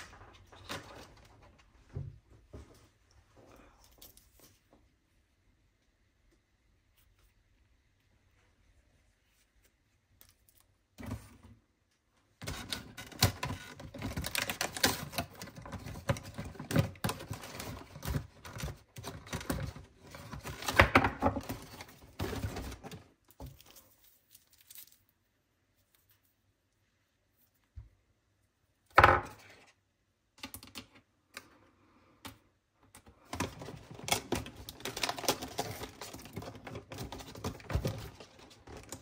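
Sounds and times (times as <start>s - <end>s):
rustling: 21.4s - 28.0s.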